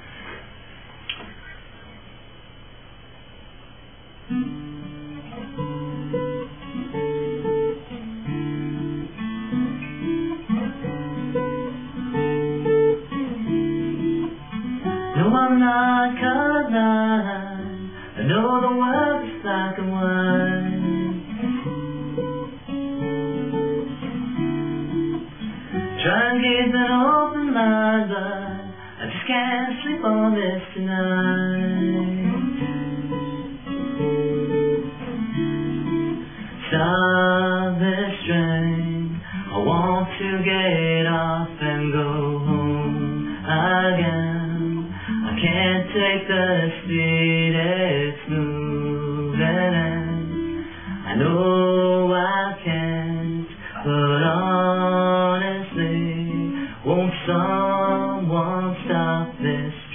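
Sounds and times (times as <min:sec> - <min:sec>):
acoustic guitar picking: 0:04.2 - 0:59.9
person singing: 0:15.0 - 0:21.2, 0:25.8 - 0:32.8, 0:36.6 - 0:59.9.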